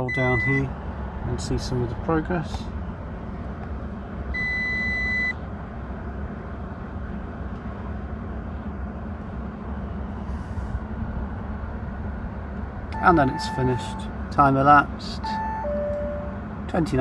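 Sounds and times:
electronic beep: 0.0 - 0.6, 4.4 - 5.4, 13.0 - 14.0, 15.2 - 16.3
low hum in car cabin: 0.0 - 17.0.

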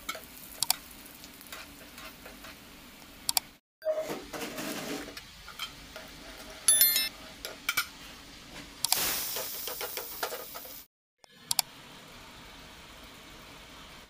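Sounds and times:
chillies sizzling in hot oil: 0.0 - 3.3, 7.9 - 10.9, 11.7 - 14.0
bright chime: 6.7 - 7.1.

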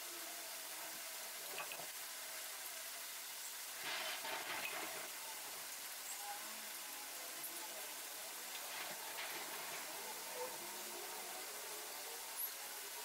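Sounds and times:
background hiss: 0.0 - 13.0
scratchy rustle: 3.8 - 5.1.

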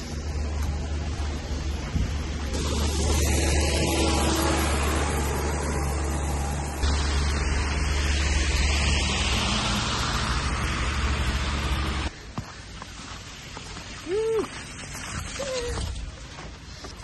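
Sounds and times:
cars driving by: 0.0 - 12.1
diesel loader passing: 0.0 - 12.1
tires rushing on wet road: 0.0 - 12.1, 12.8 - 16.7.

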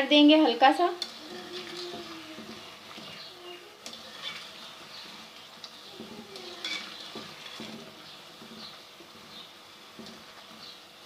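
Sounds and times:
fritters sizzling in oil: 0.0 - 11.0
utensil clicking against pan: 1.0 - 3.2.

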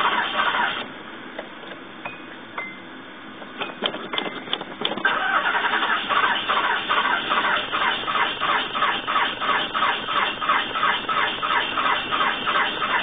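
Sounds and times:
engine cranking on starter: 0.0 - 0.9, 3.8 - 13.0.

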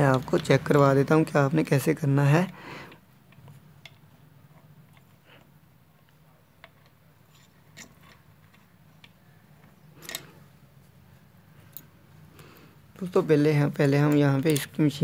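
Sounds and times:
metal parts clicking: 10.0 - 10.4, 14.0 - 15.0.

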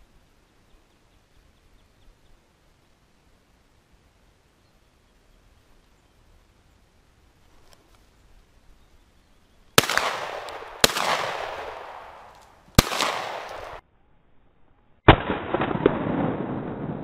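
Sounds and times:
shotgun blasts with echo: 9.8 - 13.8, 15.1 - 17.0.

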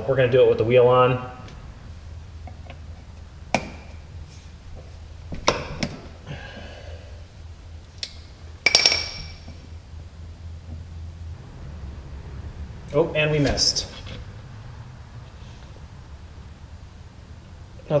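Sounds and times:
low steady hum: 0.0 - 18.0
ringing metallic clink: 8.6 - 9.5.

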